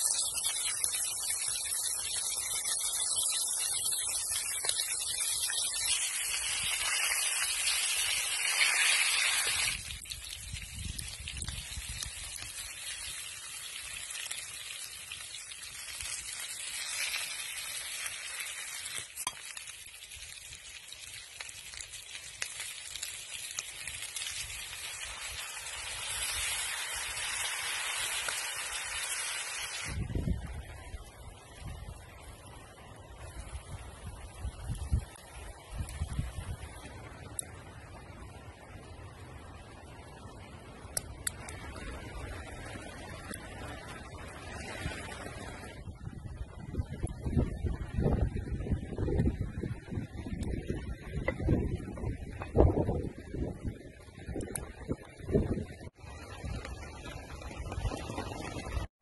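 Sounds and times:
food sizzling in a pan: 0:00.0 - 0:30.1.

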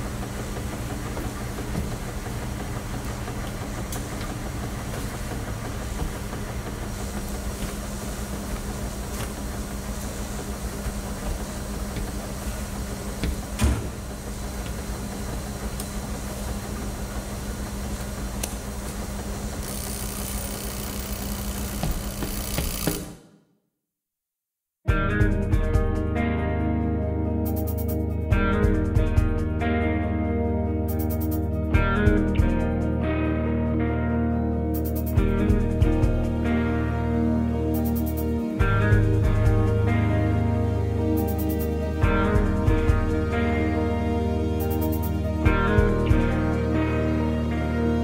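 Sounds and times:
washing machines humming: 0:00.0 - 0:23.4, 0:34.7 - 0:48.0.

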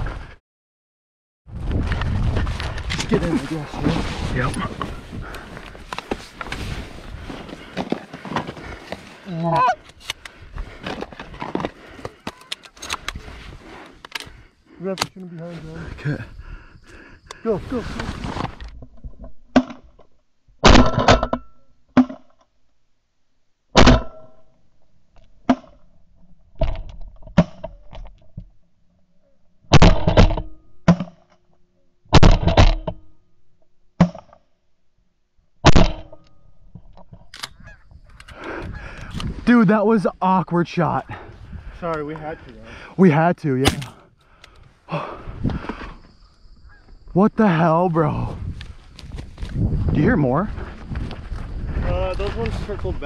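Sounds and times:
fabric and grass rustling: 0:01.5 - 0:12.0, 0:13.0 - 0:16.3, 0:17.4 - 0:18.7, 0:47.8 - 0:53.0
shotgun blasts: 0:43.6 - 0:44.0.

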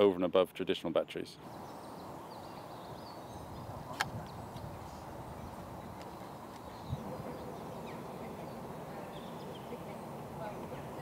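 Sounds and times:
outdoor background noise: 0:00.0 - 0:11.0
faint bird chirps: 0:01.5 - 0:10.3
sharp click: 0:03.9 - 0:04.3.

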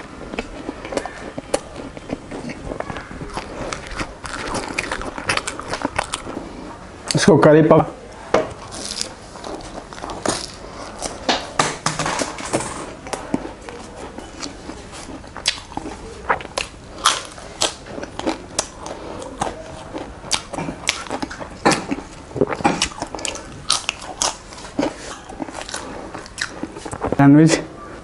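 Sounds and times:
chewing and lip smacks: 0:00.3 - 0:06.5, 0:13.0 - 0:27.2.

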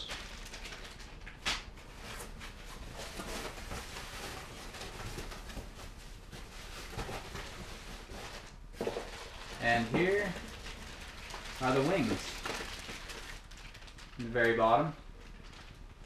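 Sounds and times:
foam sheet and plastic bags rustling: 0:00.0 - 0:16.0.

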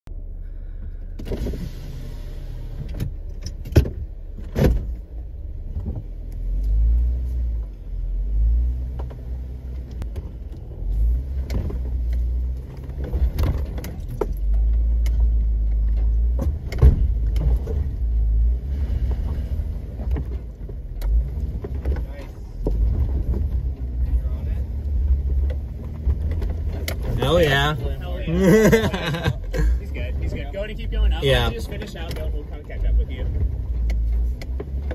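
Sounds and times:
off-road vehicle engine rumbling: 0:00.0 - 0:34.9
sharp knocks and clunks: 0:02.9 - 0:05.0, 0:11.4 - 0:18.0.

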